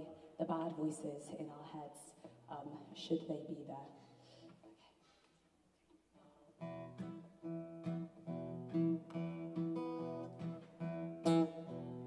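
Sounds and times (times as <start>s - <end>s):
acoustic guitars strumming chords: 6.6s - 12.0s.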